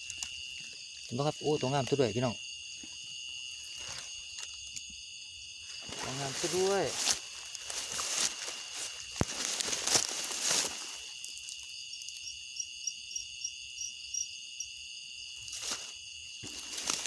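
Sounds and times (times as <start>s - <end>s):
insects trilling: 0.0s - 17.0s
rustling and handling noise: 3.6s - 4.7s, 5.7s - 11.7s, 15.4s - 17.0s.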